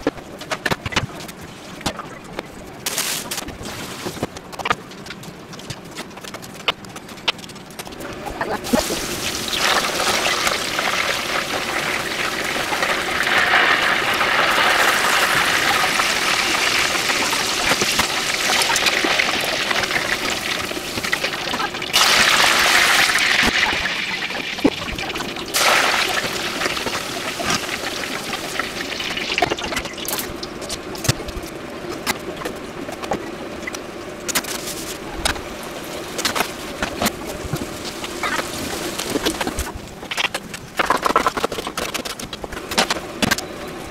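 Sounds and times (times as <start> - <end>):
crackles and pops: 0.0 - 43.9
oil sizzling: 8.0 - 30.7.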